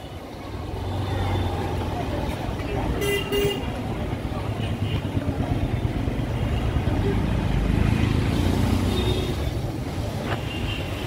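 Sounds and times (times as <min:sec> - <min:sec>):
auto-rickshaw engine: 0:00.0 - 0:11.0
motor scooters passing: 0:03.6 - 0:11.0.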